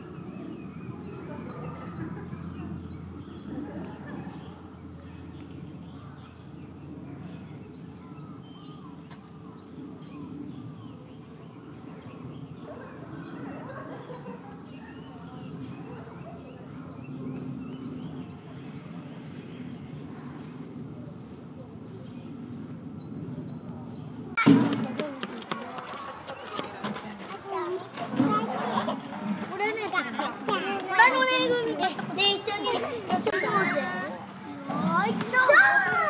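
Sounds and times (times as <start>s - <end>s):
bird chirping: 0.0s - 24.4s.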